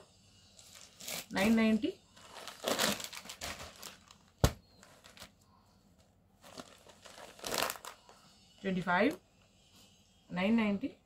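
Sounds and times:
fabric rustling: 0:06.4 - 0:08.0.

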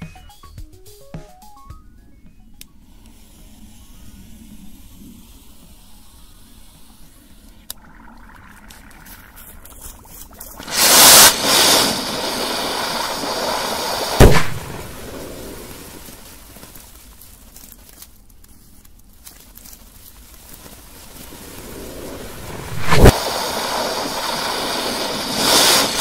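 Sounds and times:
firework rocket hissing: 0:02.8 - 0:07.6, 0:09.8 - 0:17.5, 0:20.3 - 0:26.0
sharp bang: 0:14.2 - 0:14.8.

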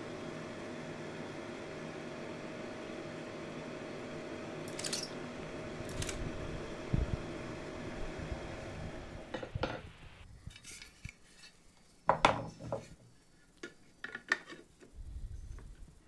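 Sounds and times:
film projector humming: 0:00.0 - 0:10.2.

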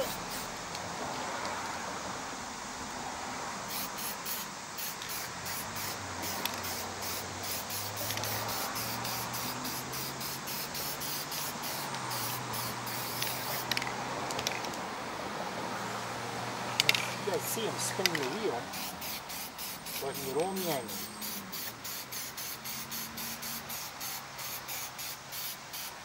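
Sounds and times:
aerosol spray can hissing: 0:00.0 - 0:00.6, 0:03.7 - 0:14.6, 0:16.8 - 0:26.0.

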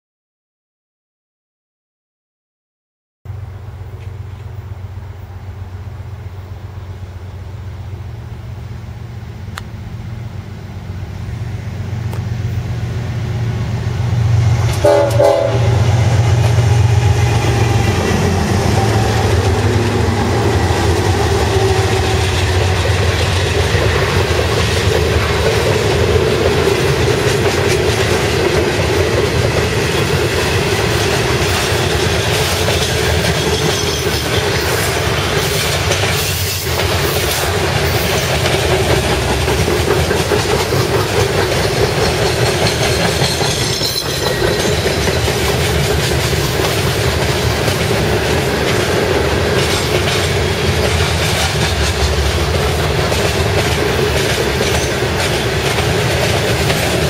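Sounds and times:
diesel locomotive engine rumble: 0:03.3 - 0:57.0
train horn: 0:14.2 - 0:24.2
freight cars clattering on rails: 0:14.5 - 0:57.0.

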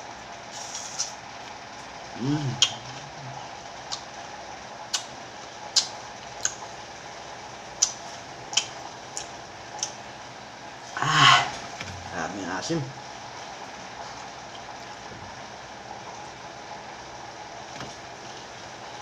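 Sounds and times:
person humming: 0:02.2 - 0:03.4, 0:11.0 - 0:11.6
wet mouth clicks chewing: 0:03.9 - 0:04.1, 0:05.7 - 0:06.6, 0:07.8 - 0:10.0.

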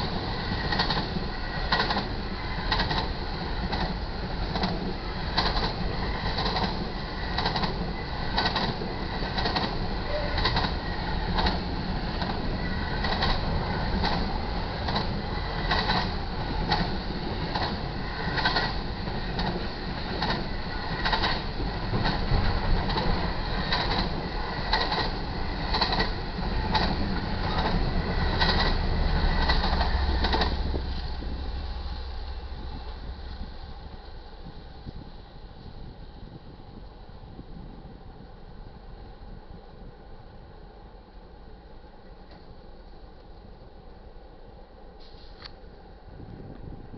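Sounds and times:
diesel locomotive engine humming: 0:00.0 - 0:46.9
freight train rumbling: 0:00.0 - 0:46.9
wheels clicking over rail: 0:03.7 - 0:11.6, 0:12.2 - 0:31.0.

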